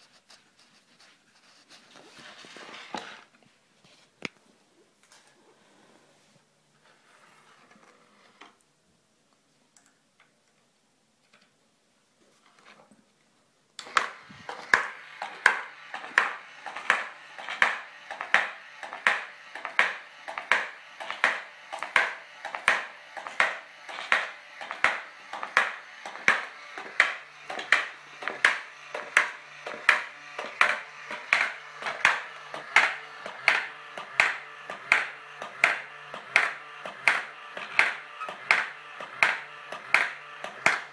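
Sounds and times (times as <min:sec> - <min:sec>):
faint electric motor hum: 0:13.8 - 0:40.9.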